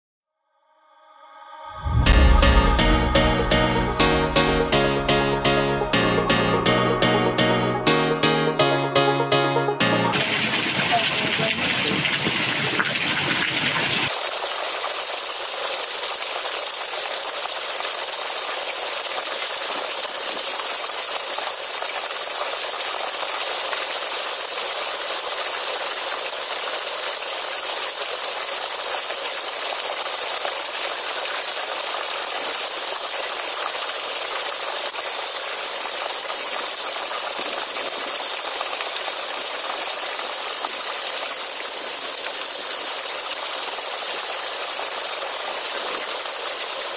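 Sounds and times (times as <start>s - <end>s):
heavy rain hissing: 10.2s - 46.9s.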